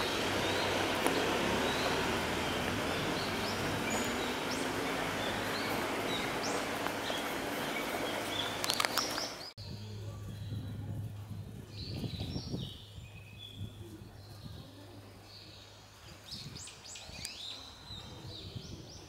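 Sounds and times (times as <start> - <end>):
high bird chirps: 0.0 - 9.5
outdoor background hiss: 0.0 - 19.0.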